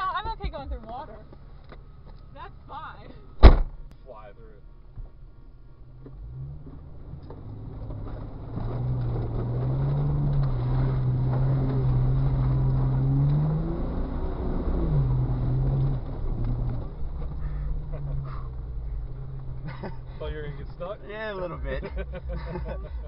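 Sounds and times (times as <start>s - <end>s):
car engine revving: 0.0s - 23.0s
water splashing: 7.9s - 20.7s.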